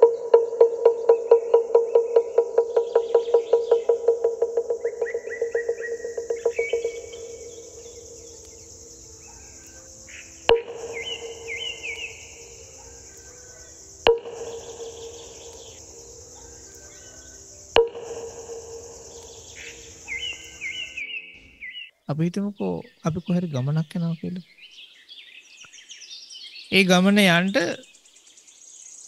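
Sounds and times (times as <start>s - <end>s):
insects chirring: 0.0s - 21.6s, 22.6s - 29.0s
birds chirping: 0.0s - 29.0s
singing bowl ringing: 10.5s - 16.4s.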